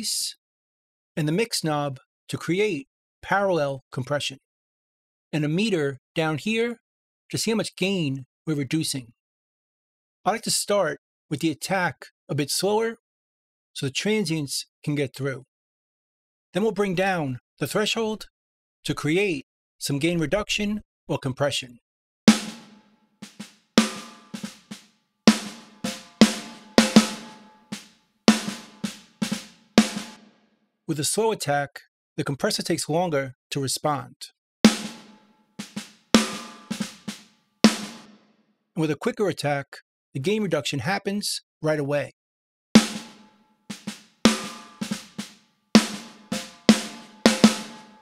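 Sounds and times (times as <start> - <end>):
snare drum groove: 22.3 - 30.4, 34.7 - 38.2, 42.8 - 48.0.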